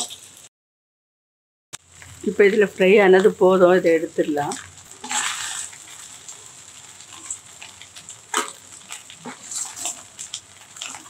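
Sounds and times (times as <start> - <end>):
oil sizzling: 0.0 - 0.5, 1.8 - 11.0
spoon clinking and scraping pan: 8.3 - 11.0.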